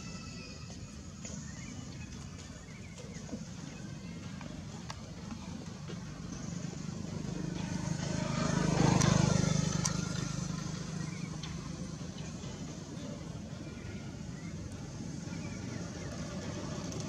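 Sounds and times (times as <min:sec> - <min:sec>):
vehicle engine passing by: 0:06.2 - 0:13.2.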